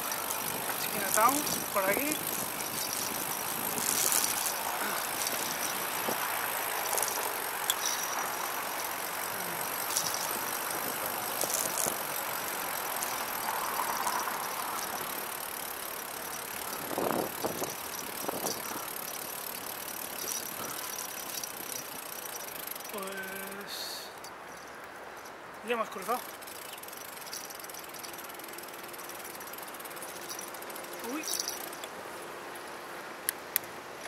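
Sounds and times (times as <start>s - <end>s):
light clicks and rattles: 0.0s - 32.0s
bicycle tyre noise: 0.0s - 32.8s
traffic: 0.0s - 34.0s.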